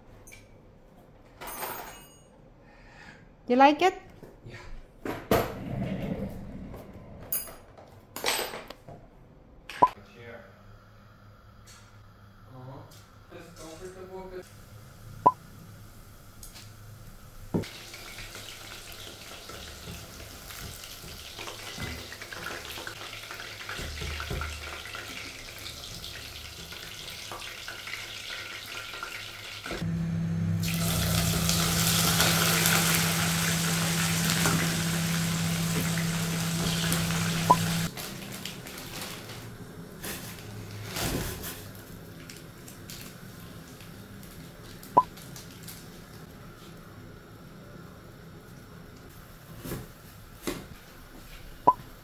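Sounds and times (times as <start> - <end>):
chicken sizzling in oil: 14.5 - 38.9.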